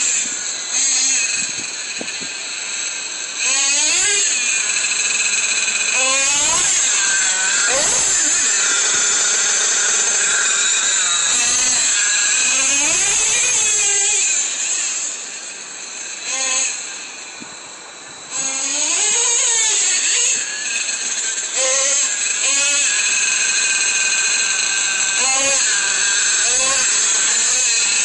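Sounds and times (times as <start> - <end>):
small nitro engine revving: 16.2 - 16.8.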